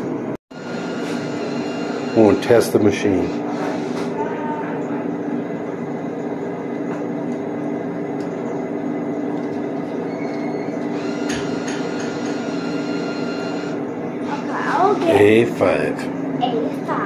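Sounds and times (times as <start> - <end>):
vending machine low hum: 0.0 - 17.0
bill acceptor whir and clicks: 10.2 - 13.8.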